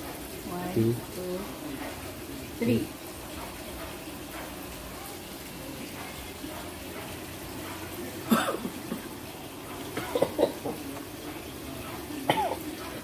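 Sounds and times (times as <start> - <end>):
person coughing: 8.3 - 9.0, 10.0 - 10.8, 12.3 - 12.7.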